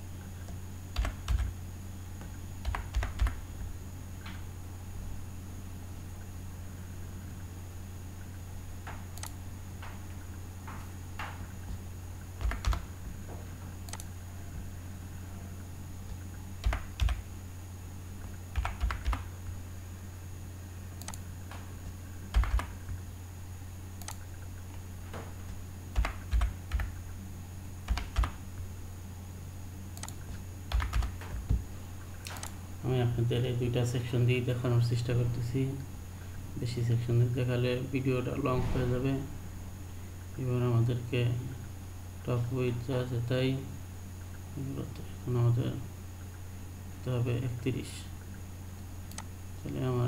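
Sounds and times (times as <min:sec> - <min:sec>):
steady low hum: 0:00.0 - 0:50.0
keyboard keys tapping: 0:01.0 - 0:01.5, 0:02.2 - 0:03.4, 0:12.4 - 0:12.9, 0:16.0 - 0:17.2, 0:18.5 - 0:19.3, 0:22.3 - 0:23.0, 0:25.5 - 0:26.9, 0:27.9 - 0:28.4, 0:30.0 - 0:31.6.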